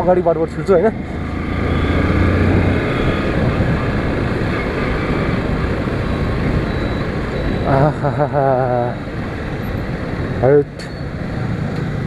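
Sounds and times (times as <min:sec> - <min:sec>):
motorcycle engine hum: 0:00.0 - 0:12.0
road noise: 0:00.0 - 0:12.0
wind rushing over microphone: 0:00.6 - 0:07.7.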